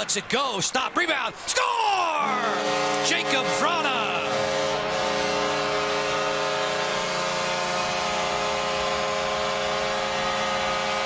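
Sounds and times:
crowd noise: 0.0s - 8.5s
goal horn blast: 2.2s - 11.0s.

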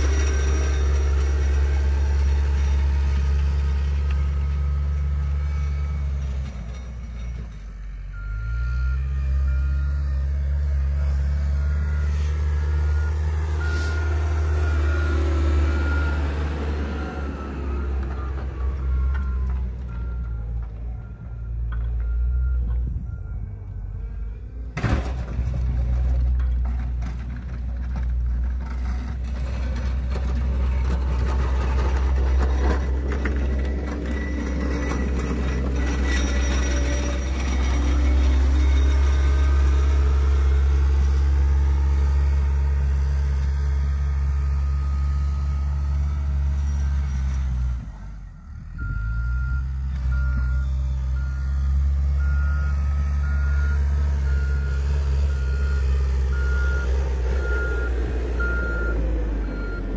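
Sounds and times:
reversing beeper: 0.0s - 24.5s, 31.8s - 42.4s, 48.2s - 59.9s
diesel engine running: 0.0s - 59.9s.

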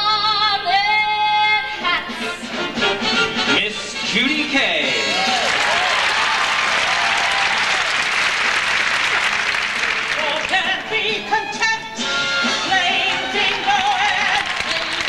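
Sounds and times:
audience applause: 5.0s - 10.7s, 14.2s - 15.0s
voices singing with music: 9.9s - 15.0s.

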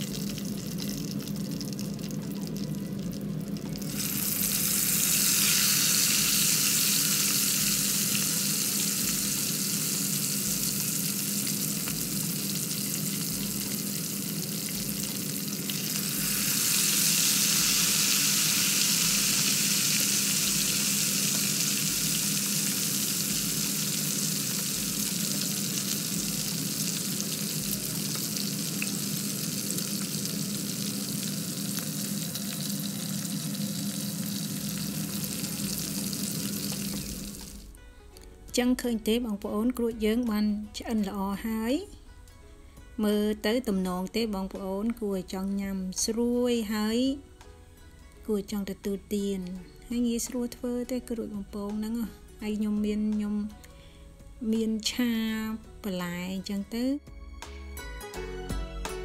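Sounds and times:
food deep-frying in hot oil: 0.0s - 37.7s.

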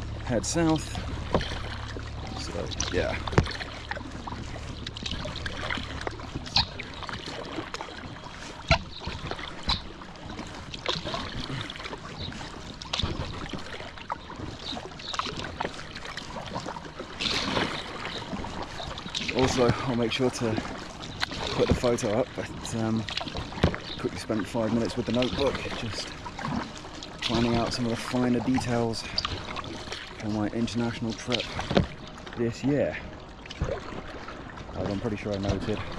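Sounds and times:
low rumble: 0.0s - 7.1s
paddle strokes in water: 0.0s - 35.9s.

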